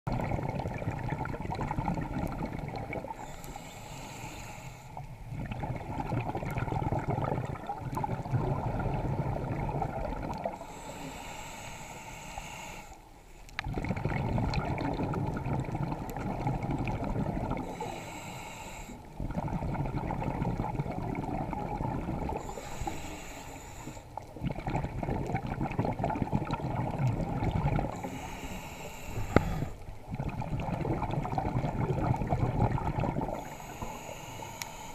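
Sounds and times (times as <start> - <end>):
exhaled air bubbling: 0.0 - 12.9, 13.5 - 34.9
regulator hissing inhale: 3.1 - 5.2, 10.6 - 13.6, 17.6 - 19.1, 22.4 - 24.2, 27.9 - 29.9, 33.3 - 34.9.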